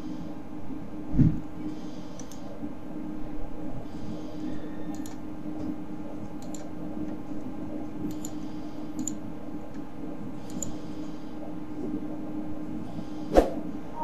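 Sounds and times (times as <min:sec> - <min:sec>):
steady low hum: 0:00.0 - 0:14.0
computer mouse clicking: 0:02.1 - 0:02.5, 0:04.9 - 0:05.2, 0:06.2 - 0:07.2, 0:08.0 - 0:09.8, 0:10.4 - 0:10.8.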